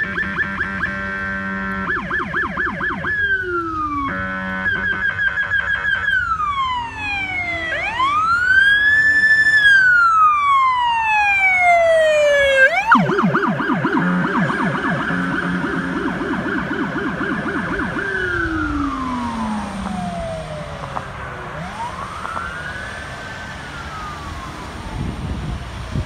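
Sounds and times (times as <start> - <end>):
electronic air horn blasts: 0.0 - 2.4, 3.8 - 6.3, 13.8 - 16.7
police siren yelping and wailing: 0.0 - 26.0.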